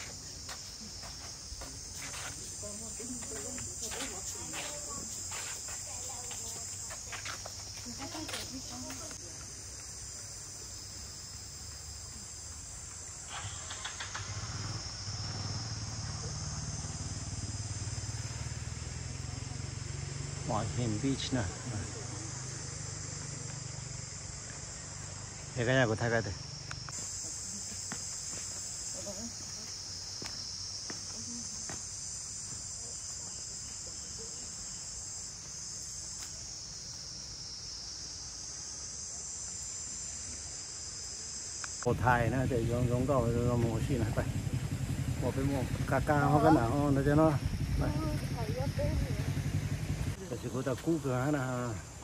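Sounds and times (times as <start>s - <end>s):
insects shrilling: 0.0s - 42.0s.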